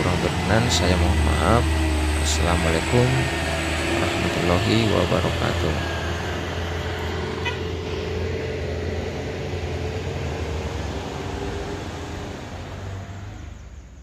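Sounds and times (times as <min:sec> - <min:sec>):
car passing: 0:00.0 - 0:14.0
diesel truck engine running: 0:00.0 - 0:14.0.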